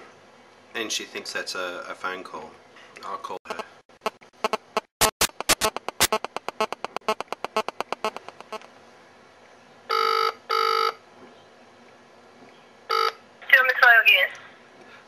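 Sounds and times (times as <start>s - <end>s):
phone ringback tone: 9.9s - 11.0s, 12.9s - 13.2s.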